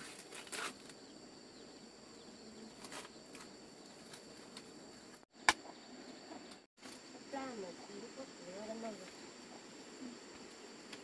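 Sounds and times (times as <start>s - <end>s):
corn husks rustling and tearing: 0.0s - 1.0s
insects chirring: 0.0s - 11.0s
sharp snap: 5.4s - 5.7s.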